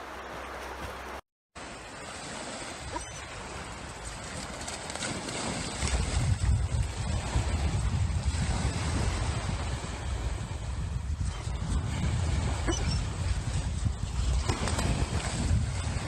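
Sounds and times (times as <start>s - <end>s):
shallow river flowing: 0.0s - 10.9s
small waves breaking on beach: 0.0s - 16.0s
wind buffeting microphone: 2.5s - 16.0s.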